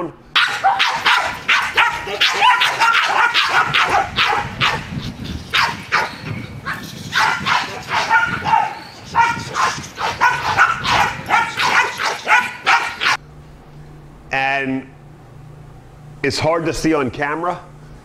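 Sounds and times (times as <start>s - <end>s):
dogs barking rapidly: 0.4s - 13.2s.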